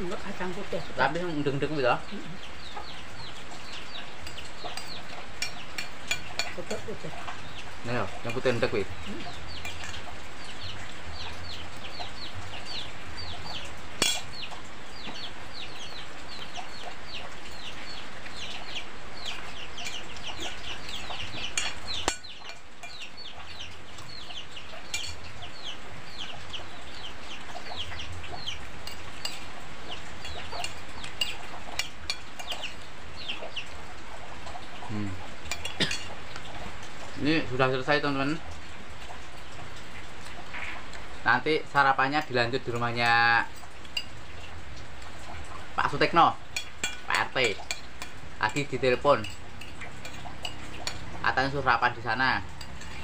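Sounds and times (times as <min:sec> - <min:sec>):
chicks peeping: 0:00.0 - 0:38.5
rain hiss: 0:00.0 - 0:53.0
spoons clinking on plates: 0:03.7 - 0:10.1, 0:14.0 - 0:14.4, 0:19.2 - 0:24.2, 0:24.8 - 0:25.6, 0:28.8 - 0:32.8, 0:35.5 - 0:36.4, 0:42.2 - 0:44.2, 0:46.5 - 0:51.6, 0:52.4 - 0:53.0.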